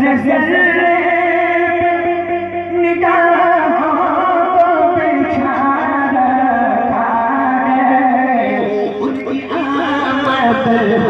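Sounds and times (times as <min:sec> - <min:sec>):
man singing devotional song: 0:03.0 - 0:11.0.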